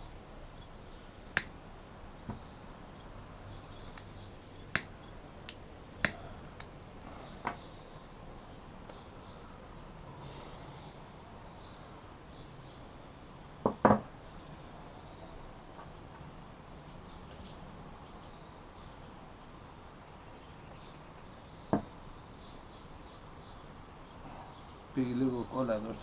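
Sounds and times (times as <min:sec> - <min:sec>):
small birds chirping: 0:00.0 - 0:13.2, 0:14.1 - 0:26.0
tools knocking on table: 0:13.7 - 0:14.0.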